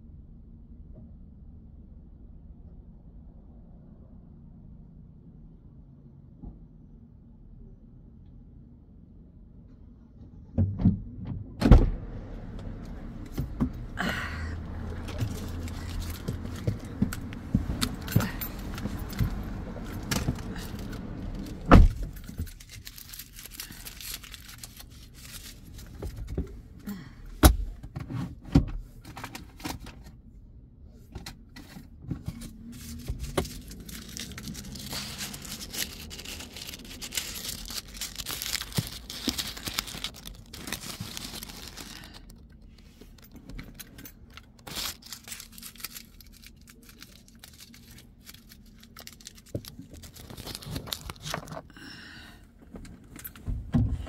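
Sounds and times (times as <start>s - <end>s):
faint rustling: 31.6s - 51.7s.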